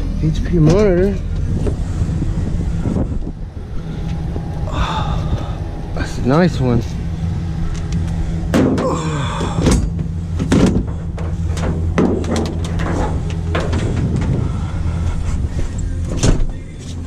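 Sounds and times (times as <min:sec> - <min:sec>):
engine idling: 0:00.0 - 0:17.0
truck door opening clunk: 0:08.5 - 0:14.5, 0:16.0 - 0:16.6.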